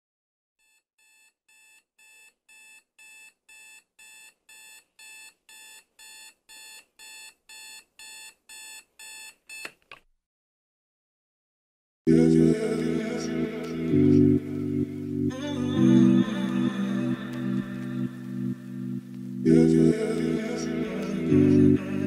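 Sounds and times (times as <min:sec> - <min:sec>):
digital alarm clock beeping: 0:00.6 - 0:09.7.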